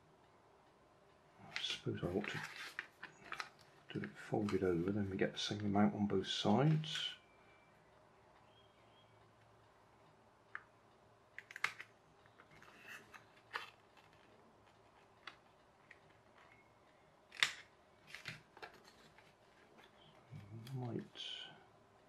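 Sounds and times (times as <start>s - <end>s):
paper rustling: 1.6s - 4.9s.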